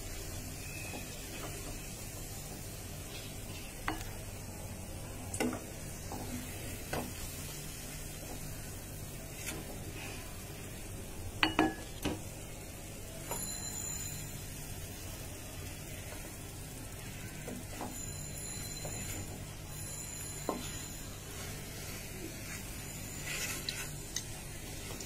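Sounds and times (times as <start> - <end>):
low sizzle of pan: 0.0 - 25.0
spatula scraping and knocking wok: 5.4 - 10.2, 17.4 - 19.4, 20.3 - 25.0.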